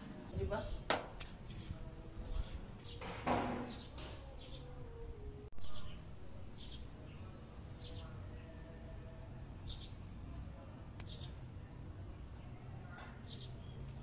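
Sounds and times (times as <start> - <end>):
birds chirping: 0.0 - 5.0, 5.6 - 11.4, 12.3 - 14.0
low background hum: 3.8 - 14.0.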